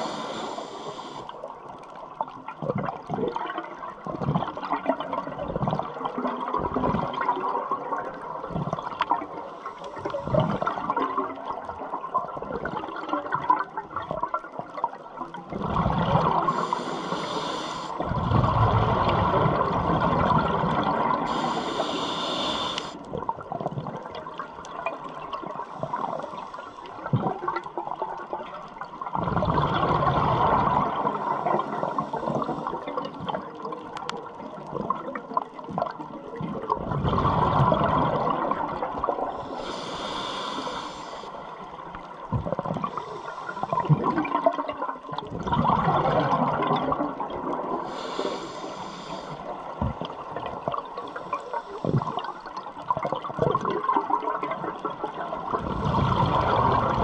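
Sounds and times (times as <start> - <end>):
regulator inhalation hiss: 0.0 - 1.4, 16.5 - 18.0, 21.2 - 23.0, 39.4 - 41.6, 47.8 - 49.5
exhaled bubbles rushing: 2.3 - 9.4, 10.0 - 16.7, 18.0 - 21.5, 23.1 - 39.6, 41.7 - 48.0, 49.4 - 57.0.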